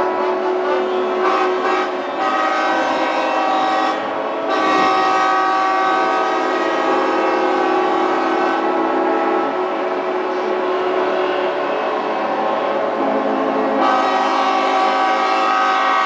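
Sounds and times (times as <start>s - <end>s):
boat horns sounding together: 0.0s - 9.6s, 13.0s - 16.0s.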